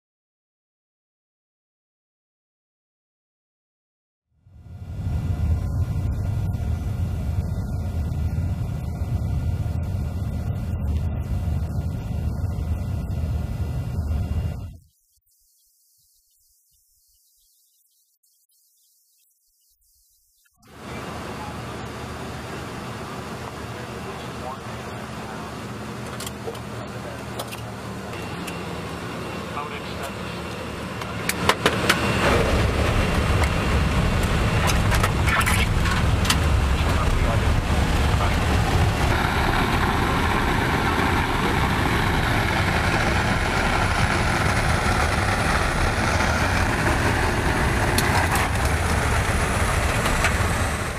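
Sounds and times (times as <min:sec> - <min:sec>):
aircraft cabin drone: 0:04.4 - 0:14.9, 0:20.6 - 0:50.9
jet engine and airflow rumble: 0:04.4 - 0:14.9, 0:20.7 - 0:50.9
faint steady tones: 0:04.5 - 0:50.9.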